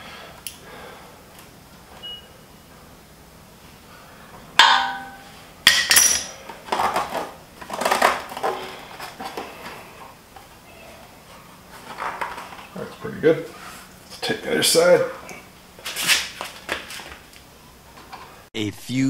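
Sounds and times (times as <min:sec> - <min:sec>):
metal tools clinking: 0:05.7 - 0:06.4.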